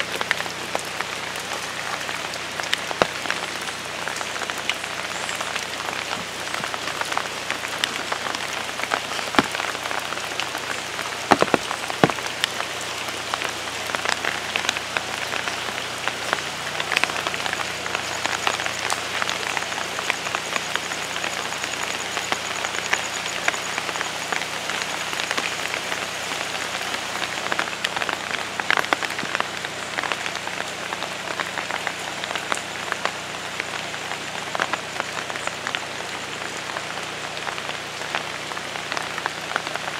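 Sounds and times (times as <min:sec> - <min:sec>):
rain falling on foliage: 0:00.0 - 0:39.9.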